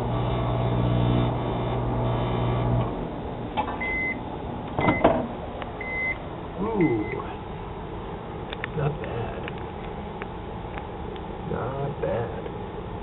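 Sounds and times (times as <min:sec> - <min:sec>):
microwave oven humming: 0:00.0 - 0:13.0
short high beeps: 0:05.8 - 0:06.2.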